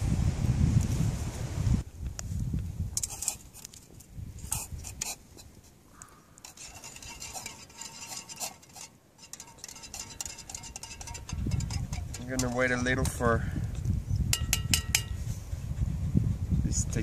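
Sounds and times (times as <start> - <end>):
spoon clinking in metal mug: 6.4 - 13.2, 14.3 - 15.2.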